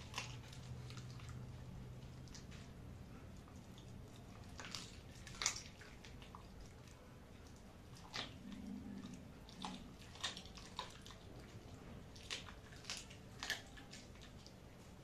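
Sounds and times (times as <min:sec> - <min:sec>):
dog chewing bone: 0:00.0 - 0:15.0.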